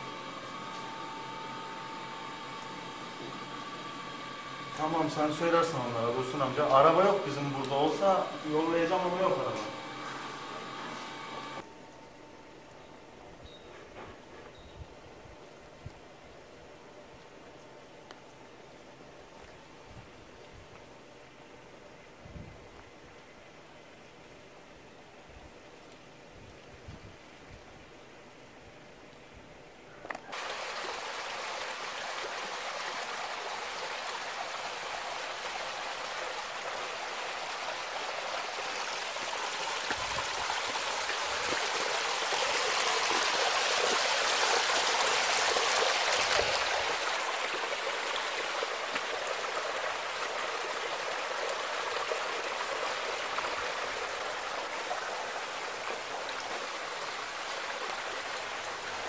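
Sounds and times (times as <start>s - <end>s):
running water rushing: 0.0s - 11.6s, 30.3s - 59.0s.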